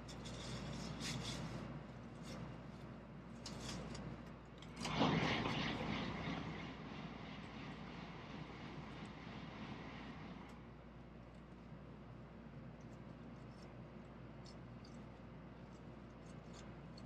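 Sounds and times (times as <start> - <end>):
train passing at speed: 4.8 - 11.0.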